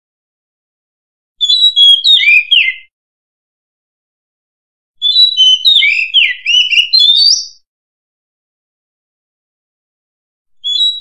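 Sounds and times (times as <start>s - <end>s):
bird singing whistles: 1.4s - 2.9s, 5.0s - 7.7s, 10.6s - 11.0s.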